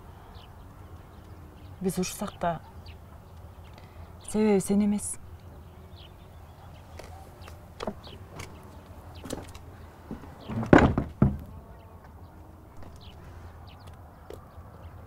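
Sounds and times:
birds chirping faintly: 0.0 - 15.0
wooden gate banging: 9.2 - 11.7.

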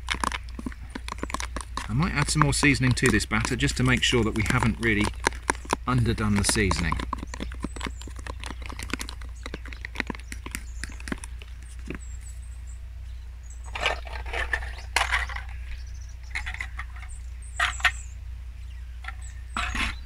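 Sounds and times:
fork whisking batter in plastic tub: 1.8 - 8.2.

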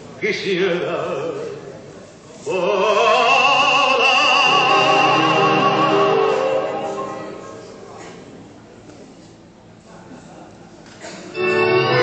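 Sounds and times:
tango song with sung vocal: 2.4 - 7.4
sustained orchestral chord: 4.5 - 8.0, 11.3 - 12.0.

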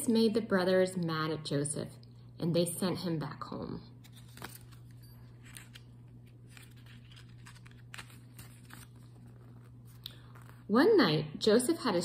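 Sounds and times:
steady low hum: 0.0 - 12.0
paper pages turning: 4.0 - 10.7.

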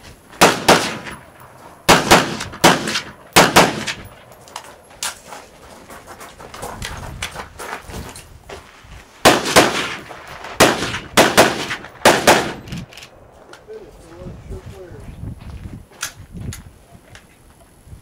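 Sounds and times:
gunshots close by: 0.4 - 1.2, 1.9 - 4.1, 9.2 - 12.8.

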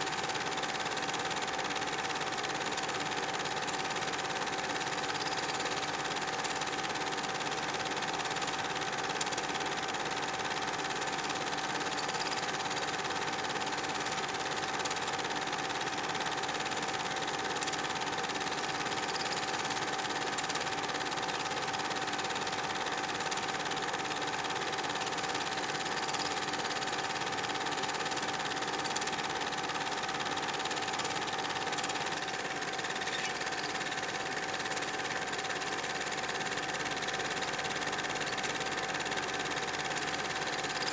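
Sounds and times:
film projector whirring: 0.0 - 40.9.

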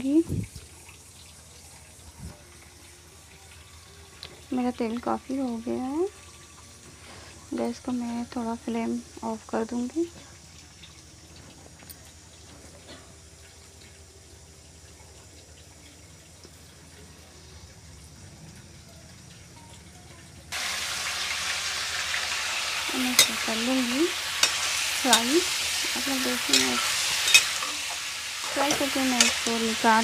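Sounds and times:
chicken sizzling in hot oil: 0.0 - 30.0
utensil clinks: 25.9 - 27.8.

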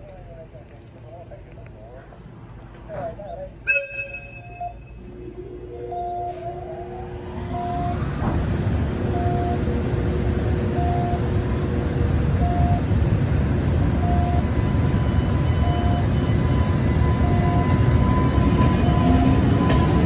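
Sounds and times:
electric locomotive rumbling: 1.9 - 20.0
short beeps: 3.7 - 8.0
high whine: 3.8 - 20.0.

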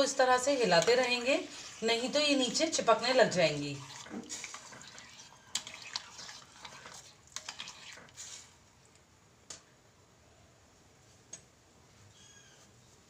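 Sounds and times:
spoon swishing in water: 0.7 - 8.7.

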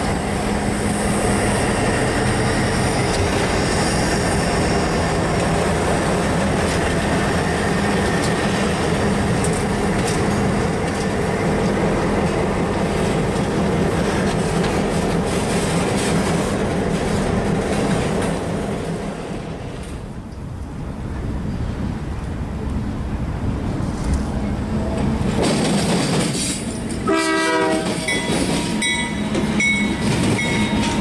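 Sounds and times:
freight cars rolling by: 0.0 - 27.1
diesel locomotive engine rumble: 0.0 - 31.0
wheels clicking over rail joints: 2.2 - 19.0, 24.0 - 27.1, 27.7 - 31.0.

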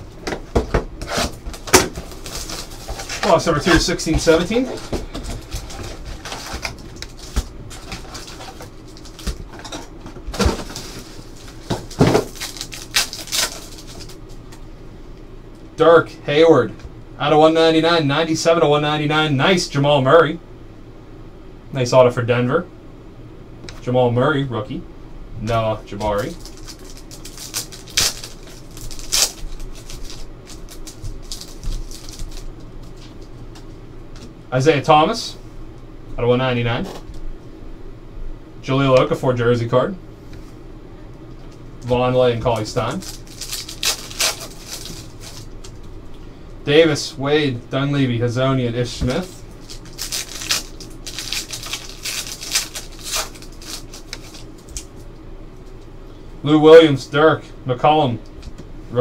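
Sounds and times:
foil pack crinkling torn open: 1.1 - 9.7, 10.3 - 14.3, 26.0 - 33.2, 42.6 - 45.9, 49.1 - 54.9.

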